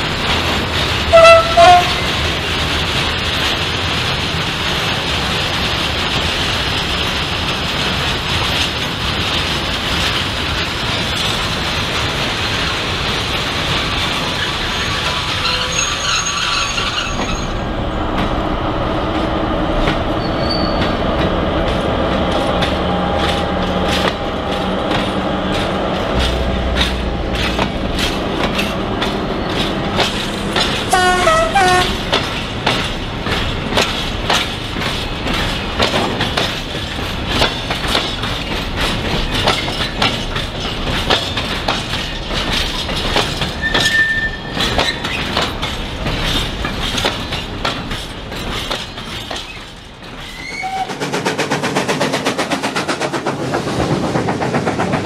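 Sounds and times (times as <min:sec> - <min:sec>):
horn-like tones: 0:01.1 - 0:02.0, 0:30.9 - 0:32.0
model train wheels clattering: 0:22.3 - 0:53.4.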